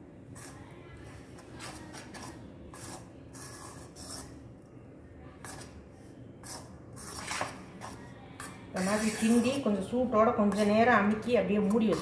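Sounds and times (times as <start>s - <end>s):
utensil scraping dough in vessel: 0.3s - 4.5s, 5.4s - 5.8s, 6.4s - 12.0s.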